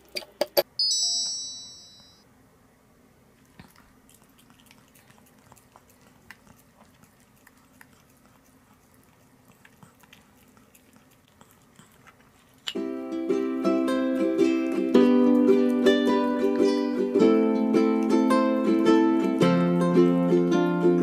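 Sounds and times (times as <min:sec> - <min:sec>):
dog licking a metal spoon: 0:03.6 - 0:12.8.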